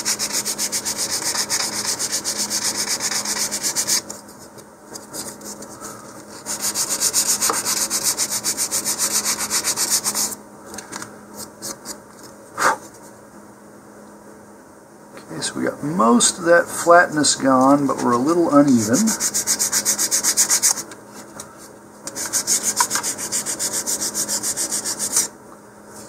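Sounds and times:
sandpaper sanding wood: 0.0 - 4.1, 6.3 - 10.4, 17.4 - 20.9, 22.1 - 25.3.

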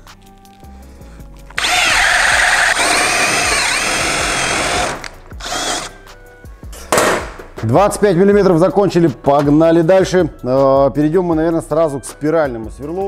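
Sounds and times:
drill boring into wood: 1.6 - 6.0.

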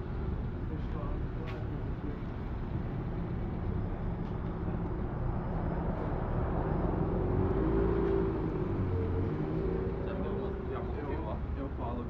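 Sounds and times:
low rumble of traffic: 0.0 - 12.0
car engine passing: 2.6 - 11.7.

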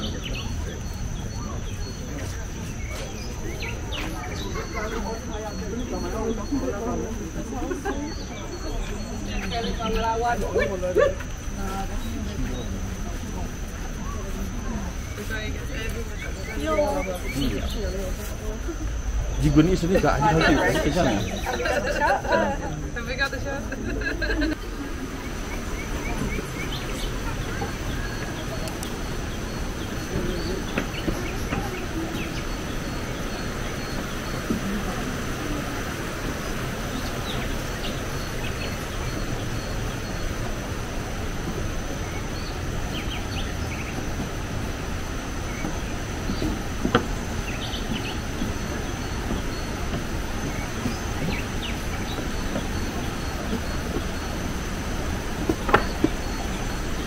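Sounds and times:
bird chirps: 0.0 - 6.8, 24.4 - 34.6
birds chirping: 0.0 - 57.0
high insect drone: 0.0 - 57.0
steady low rumble: 11.3 - 57.0.

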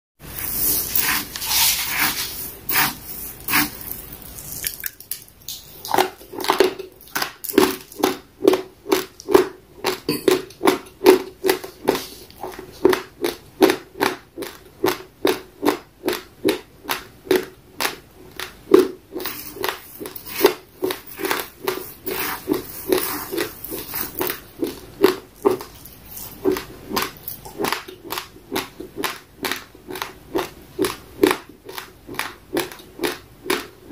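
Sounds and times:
chewing crunchy dry rice: 10.6 - 33.9.

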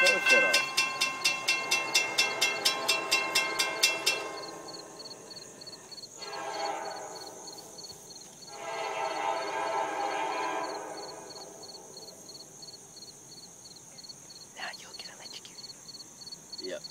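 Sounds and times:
locomotive horn blasts: 0.0 - 4.4, 6.2 - 7.8, 8.5 - 11.6.

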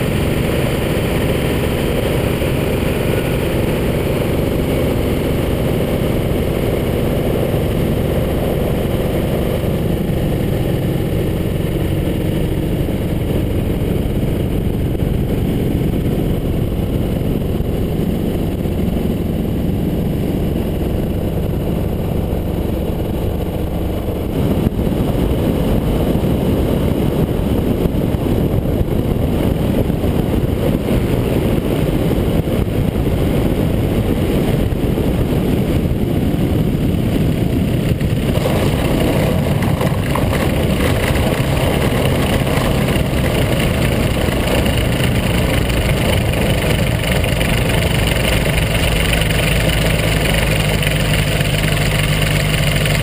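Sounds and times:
wind rushing: 0.0 - 52.3
small aircraft engine running: 0.0 - 53.0
wheels rolling on gravel: 37.6 - 53.0.

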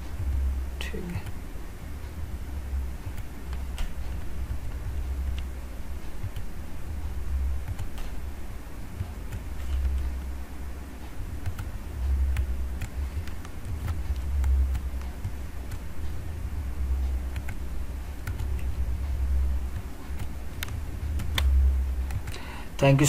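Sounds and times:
low background rumble: 0.0 - 23.0
sharp clicks: 17.3 - 17.6, 18.2 - 18.7, 19.7 - 22.4.

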